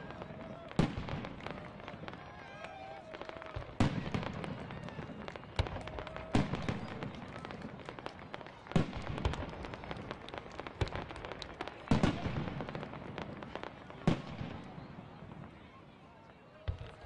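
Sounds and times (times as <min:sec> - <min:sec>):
fireworks crackling: 0:00.0 - 0:17.0
firework shells booming: 0:03.2 - 0:15.5.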